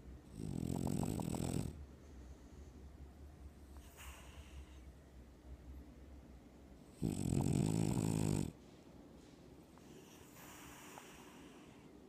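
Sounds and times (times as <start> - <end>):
dog snoring: 0.2 - 1.8, 6.8 - 8.6
dog breathing softly: 3.6 - 4.9, 7.0 - 12.0.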